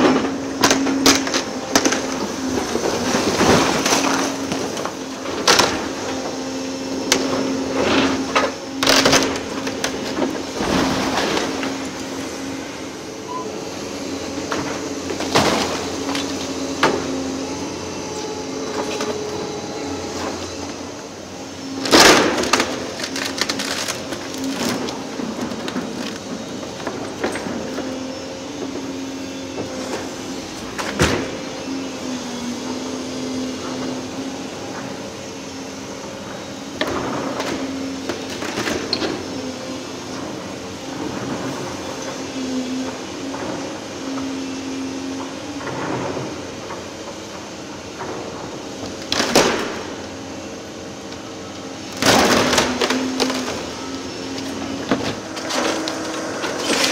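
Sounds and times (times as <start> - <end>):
excavator engine and hydraulics whine: 0.0 - 56.9
timber and masonry crashing: 51.8 - 56.9.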